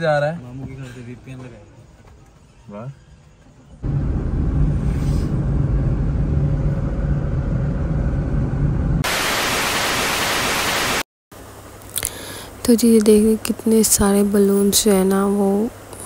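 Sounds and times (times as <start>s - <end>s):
constant hum: 0.0s - 9.0s, 11.4s - 16.0s
car cabin road rumble: 3.2s - 9.0s
tv static hiss: 9.0s - 11.0s.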